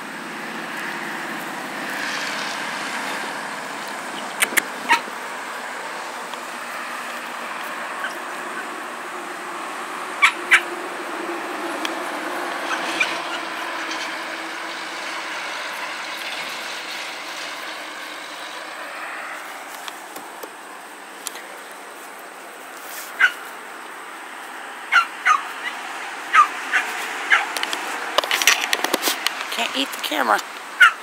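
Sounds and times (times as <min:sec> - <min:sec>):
steady background noise: 0:00.0 - 0:31.0
puppies yipping: 0:04.1 - 0:05.2, 0:07.0 - 0:08.8, 0:10.2 - 0:10.8, 0:12.6 - 0:13.6, 0:22.9 - 0:23.5, 0:24.9 - 0:28.0, 0:30.8 - 0:31.0.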